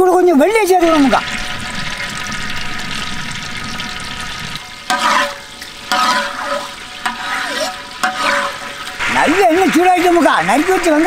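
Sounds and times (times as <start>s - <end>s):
oil sizzling in pot: 0.1s - 11.0s
metal ladle scraping pot: 1.3s - 9.0s.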